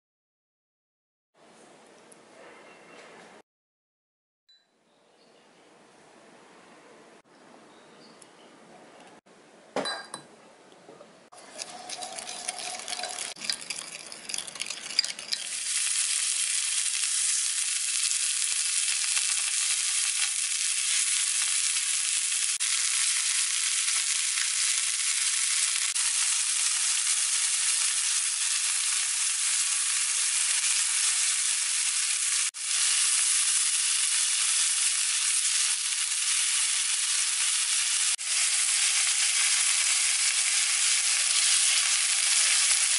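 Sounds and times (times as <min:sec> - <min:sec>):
food sizzling on a hot griddle: 0:11.4 - 0:42.9.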